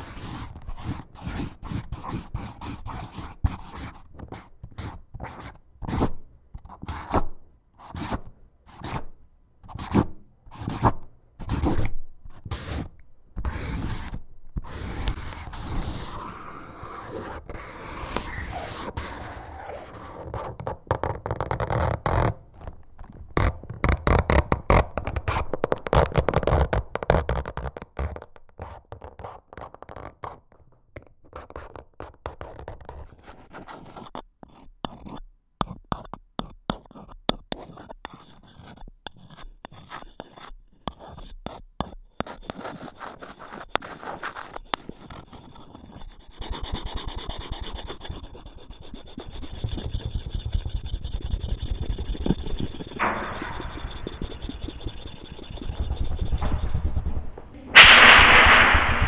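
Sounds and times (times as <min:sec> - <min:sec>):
scraping strokes: 0:44.2 - 0:59.0.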